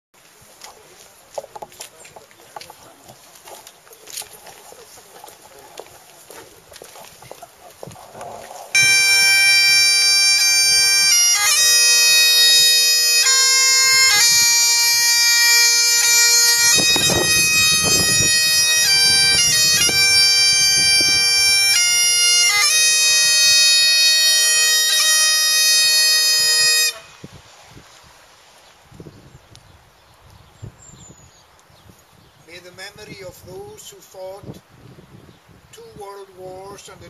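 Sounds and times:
bagpipes playing: 8.7s - 27.3s.

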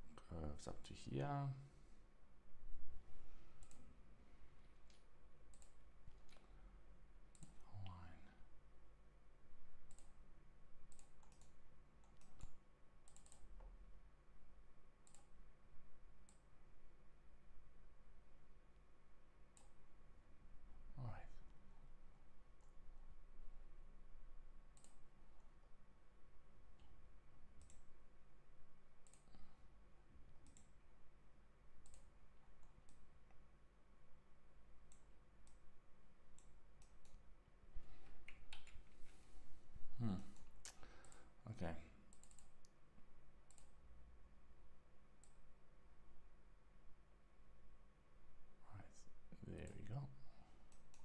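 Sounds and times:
faint low hum: 0.0s - 51.0s
computer mouse clicking: 3.5s - 4.0s, 4.8s - 6.5s, 7.3s - 8.0s, 9.8s - 10.2s, 10.8s - 13.8s, 15.0s - 15.4s, 19.5s - 19.8s, 24.7s - 25.1s, 26.7s - 28.0s, 29.0s - 29.5s, 30.4s - 30.8s, 31.8s - 33.4s, 34.8s - 35.7s, 36.3s - 39.3s, 40.3s - 41.3s, 42.1s - 42.8s, 43.4s - 43.8s, 45.2s - 45.5s, 50.6s - 51.0s.

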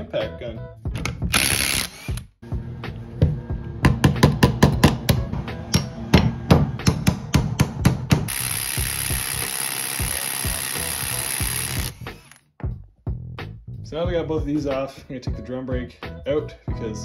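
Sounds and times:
impact wrench whirring: 1.0s - 2.3s, 8.3s - 12.4s.

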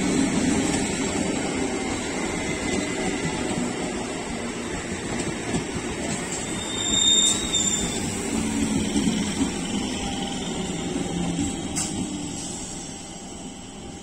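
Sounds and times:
train wheels rumbling on rails: 0.0s - 14.0s
high-pitched squeal: 6.3s - 11.0s.

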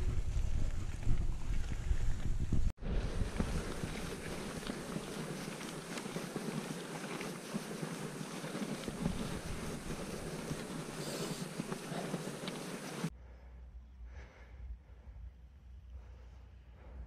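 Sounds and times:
wind buffeting microphone: 0.0s - 13.1s
tyres rolling over gravel: 2.8s - 13.1s.

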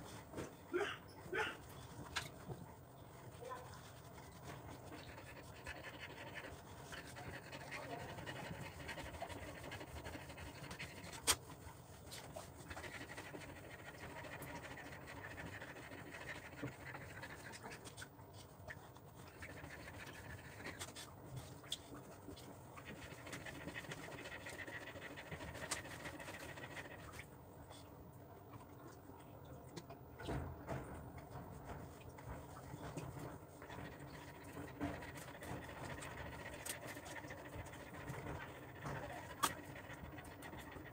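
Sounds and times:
dog panting faintly: 0.0s - 29.4s, 30.2s - 40.9s.

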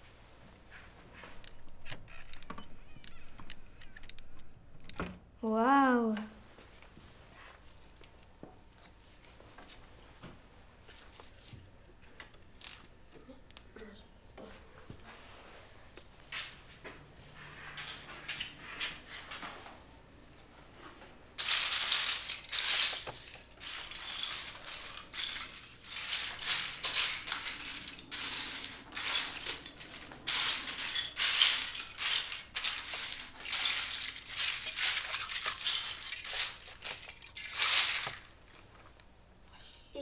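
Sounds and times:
plastic bricks rattling: 21.4s - 38.4s.

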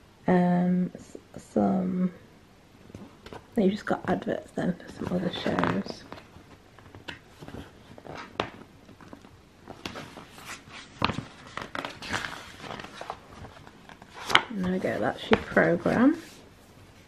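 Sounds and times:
paper pages rustling and turning: 4.8s - 16.5s.

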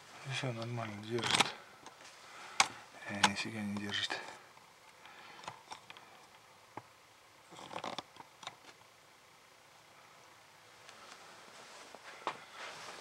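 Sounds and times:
rustling: 10.7s - 13.0s.

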